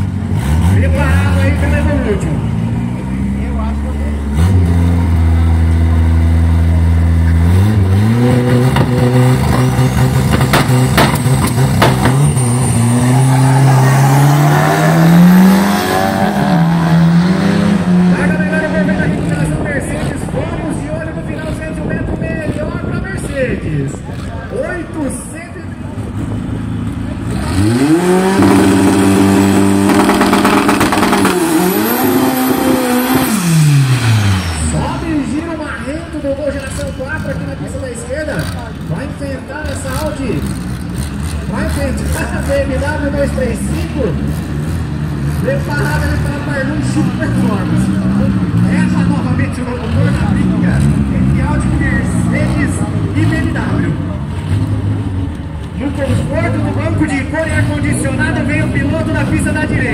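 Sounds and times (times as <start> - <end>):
drag car engines revving: 0.0 - 59.9
exhaust crackling: 25.1 - 59.9.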